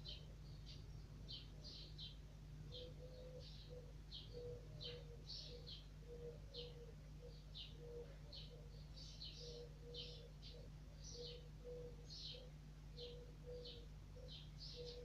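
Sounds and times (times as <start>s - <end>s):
bird chirping: 0.0s - 15.0s
steady low hum: 0.0s - 15.0s.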